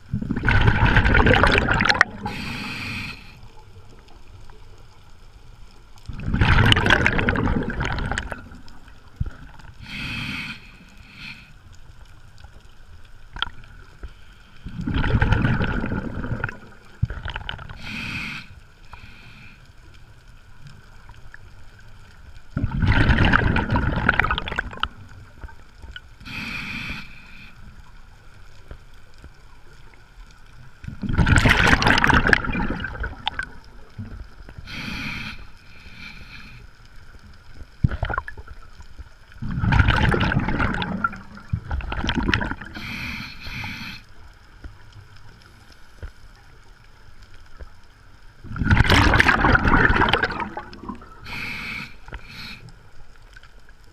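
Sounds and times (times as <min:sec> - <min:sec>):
gurgling exhaled bubbles: 0:00.0 - 0:03.0, 0:06.1 - 0:09.6, 0:14.6 - 0:18.0, 0:22.6 - 0:25.6, 0:30.9 - 0:35.3, 0:37.8 - 0:38.6, 0:39.3 - 0:43.0, 0:48.4 - 0:52.6
hissing inhale through regulator: 0:01.8 - 0:03.6, 0:09.6 - 0:12.1, 0:17.6 - 0:20.1, 0:26.2 - 0:28.0, 0:34.5 - 0:37.2, 0:42.5 - 0:44.4, 0:50.8 - 0:53.0.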